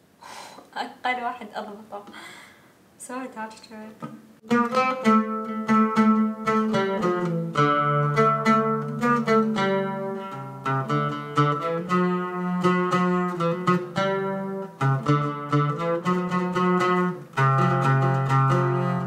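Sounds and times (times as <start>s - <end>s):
oud melody: 4.4s - 19.0s.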